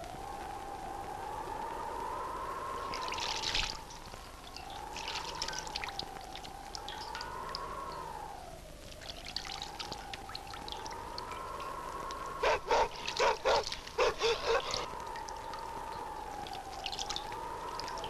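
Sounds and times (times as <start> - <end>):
wavering tone: 2.8 - 13.2
dog barking: 12.4 - 14.9.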